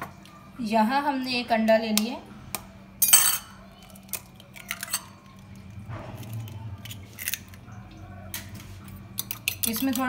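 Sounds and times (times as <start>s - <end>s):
egg cracking: 3.8s - 7.7s.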